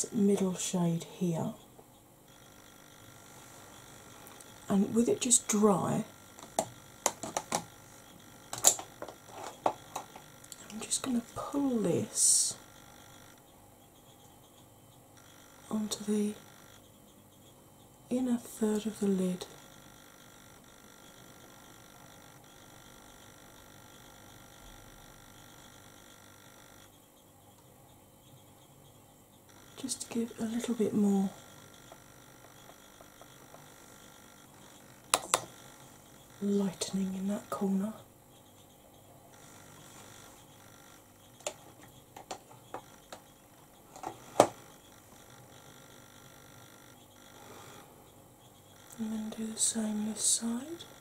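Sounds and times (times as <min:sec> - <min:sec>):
faint electrical hum: 0:00.0 - 0:51.0
makeup tools clicking and tapping: 0:06.4 - 0:07.7, 0:08.5 - 0:10.9, 0:35.1 - 0:35.6, 0:41.4 - 0:43.3.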